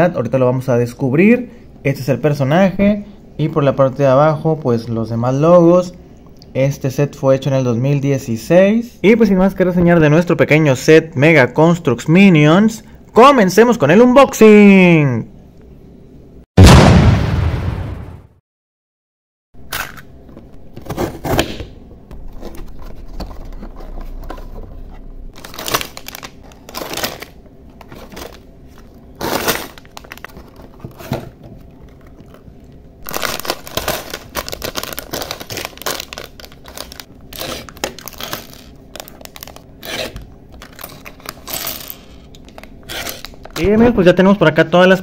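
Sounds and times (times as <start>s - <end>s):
plastic bags crinkling and tearing: 25.3s - 43.6s.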